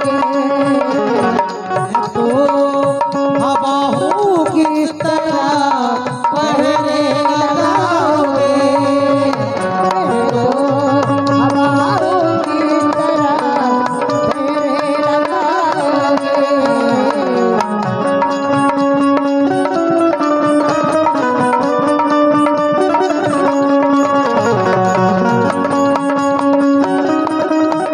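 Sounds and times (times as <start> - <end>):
woman singing: 0.0 - 18.4
hand drum strokes: 0.0 - 27.9
harmonium: 0.0 - 27.9.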